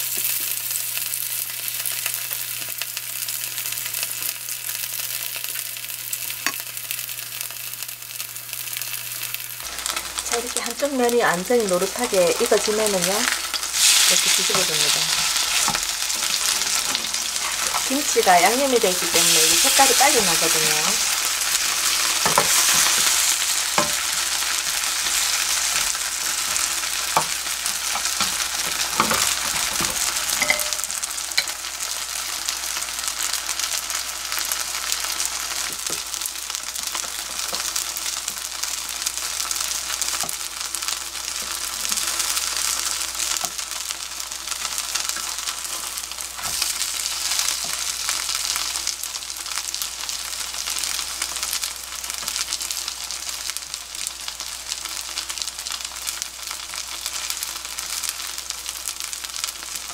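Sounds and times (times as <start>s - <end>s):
pancakes sizzling in oil: 0.0s - 59.9s
spatula knocking on pan: 23.8s - 24.1s.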